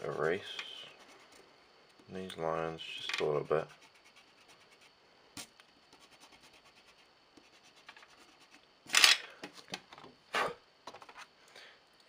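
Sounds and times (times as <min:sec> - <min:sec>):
eraser rubbing on paper: 0:00.0 - 0:01.4, 0:03.6 - 0:04.9, 0:05.9 - 0:08.6.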